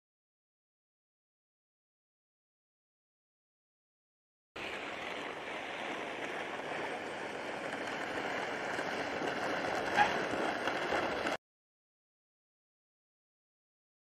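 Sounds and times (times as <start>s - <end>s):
vehicle tyre and engine noise: 4.6s - 11.4s.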